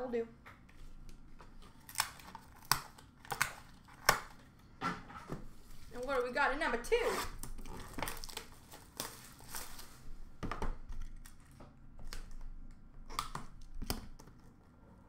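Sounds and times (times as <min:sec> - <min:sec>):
wrapper crinkling and tearing: 0:01.6 - 0:04.4, 0:07.3 - 0:10.0.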